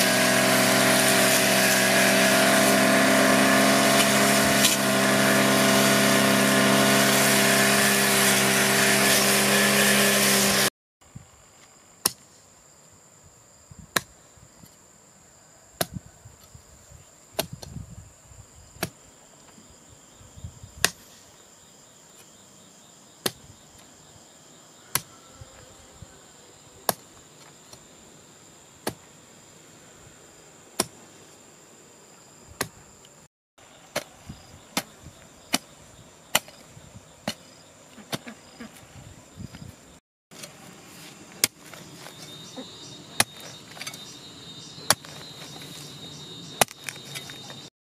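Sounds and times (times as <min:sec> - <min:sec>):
engine running loudly: 0:00.0 - 0:10.7
hoe striking soil: 0:00.0 - 0:10.7, 0:12.0 - 0:12.4, 0:23.2 - 0:23.4, 0:26.9 - 0:27.8, 0:28.8 - 0:29.1, 0:30.8 - 0:31.0, 0:33.9 - 0:38.8, 0:40.3 - 0:47.7
cricket trilling: 0:12.6 - 0:40.0, 0:41.2 - 0:47.7.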